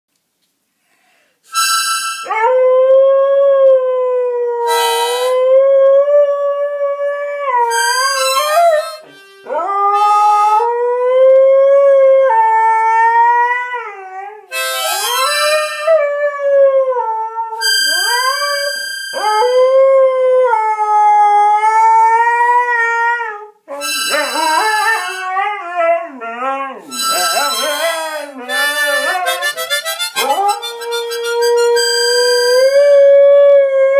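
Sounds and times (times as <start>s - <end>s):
harmonica chords: 1.5s - 2.5s, 4.7s - 5.6s, 7.6s - 10.8s, 14.5s - 16.1s, 17.6s - 20.0s, 23.7s - 25.5s, 26.9s - 33.1s
dogs howling: 15.0s - 33.9s.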